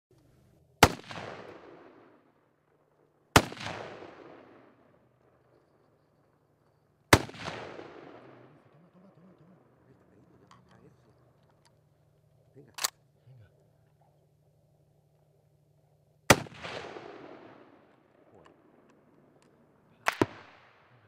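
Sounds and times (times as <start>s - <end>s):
gunshots echoing: 0.8s - 10.8s, 16.3s - 21.0s.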